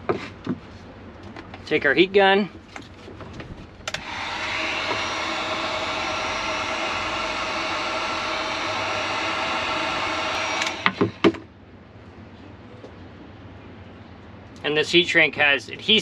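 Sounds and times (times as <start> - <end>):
heat gun fan whining: 3.2 - 11.5.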